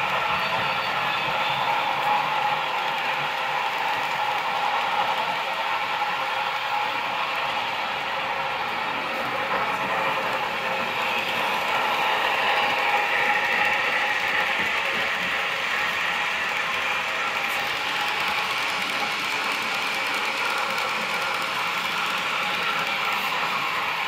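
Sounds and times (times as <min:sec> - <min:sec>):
model trains clattering on rails: 0:09.2 - 0:24.0.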